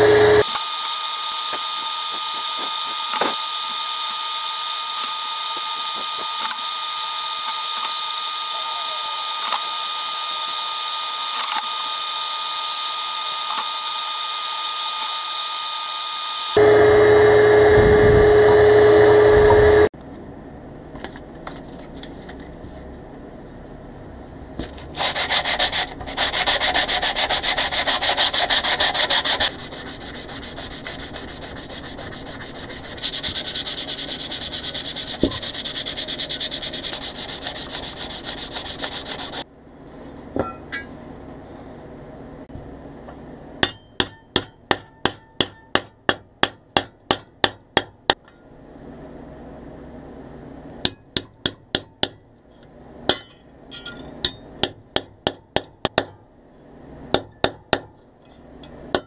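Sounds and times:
sanding sponge rubbing metal: 25.0s - 39.4s
hammer tapping metal punch: 43.6s - 48.4s, 53.1s - 56.2s, 58.6s - 59.0s.

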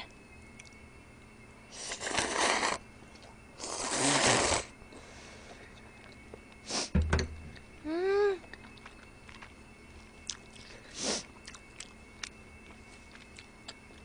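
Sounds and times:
slurping noodles: 1.8s - 2.8s, 3.6s - 4.7s
low knock: 7.0s - 7.6s.

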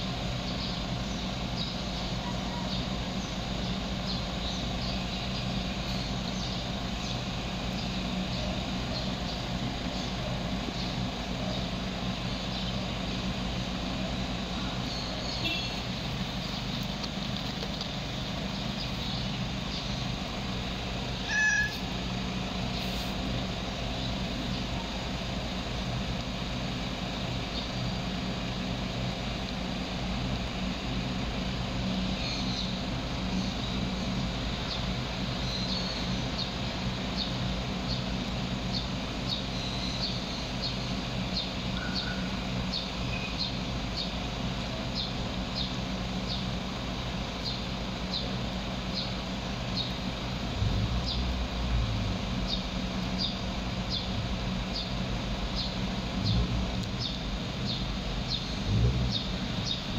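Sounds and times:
vehicle engine idling: 0.0s - 59.9s
brief low rumble: 56.2s - 57.1s.

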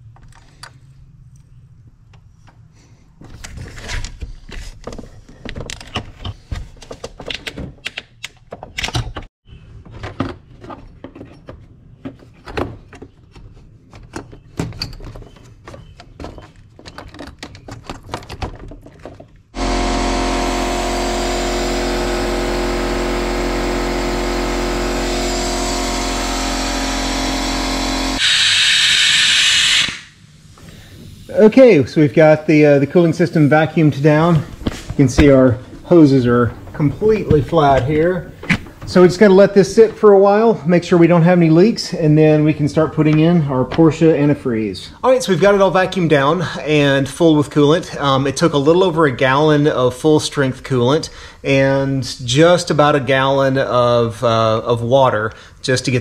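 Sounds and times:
machine droning: 19.6s - 31.8s, 32.4s - 39.6s
air hissing: 20.2s - 31.6s.

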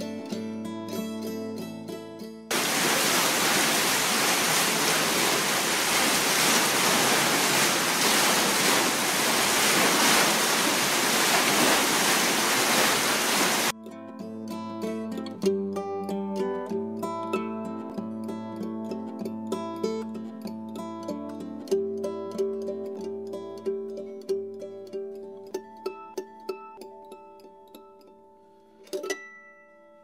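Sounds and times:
plucked-string music: 0.0s - 2.5s, 13.7s - 30.0s
churning foaming water: 2.5s - 13.7s.

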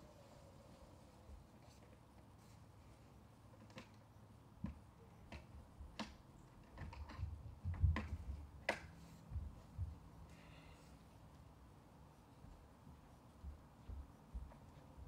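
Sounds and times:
plastic clicks and knocks: 4.6s - 8.9s.

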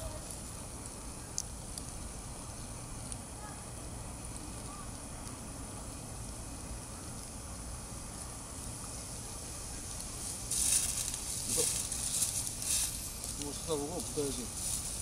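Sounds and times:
low outdoor background: 0.0s - 15.0s
dry leaves crackling and rustling: 4.3s - 15.0s.

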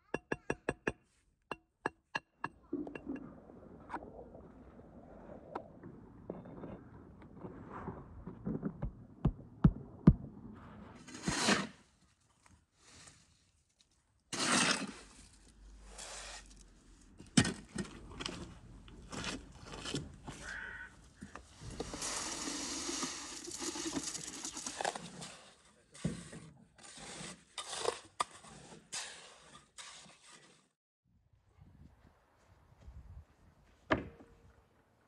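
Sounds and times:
trowel scraping mortar: 11.0s - 11.9s, 14.3s - 15.3s, 21.6s - 30.8s
bucket being handled: 21.2s - 27.1s.

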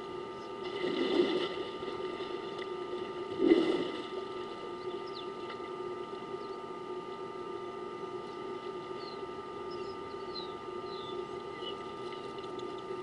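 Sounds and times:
steady background hum: 0.0s - 13.0s
water sloshing: 0.6s - 4.7s.

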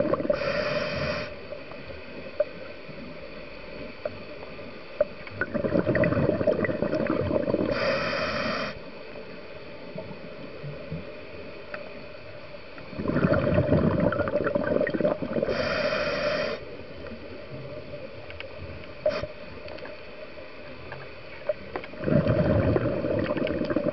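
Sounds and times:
exhaled bubbles underwater: 0.0s - 0.7s, 5.3s - 8.0s, 12.9s - 15.8s, 21.5s - 23.9s
regulator hiss: 0.0s - 10.5s, 15.0s - 18.1s
underwater background: 0.0s - 23.9s.

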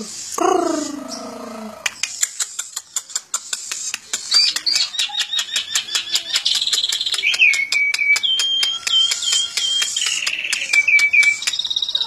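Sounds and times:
starling clicks: 1.7s - 11.9s
starling whistling and trilling: 4.1s - 12.0s.

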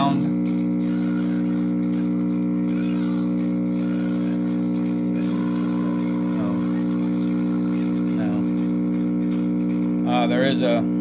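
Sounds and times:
record player electrical hum: 0.0s - 11.0s.

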